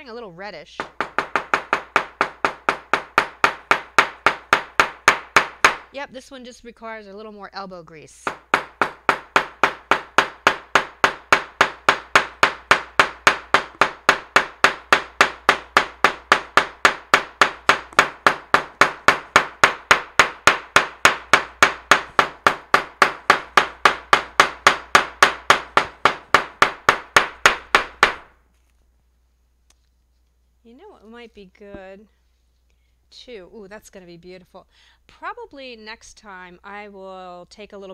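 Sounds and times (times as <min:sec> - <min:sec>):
hammer beating on paper: 0:00.8 - 0:06.0, 0:08.2 - 0:28.4.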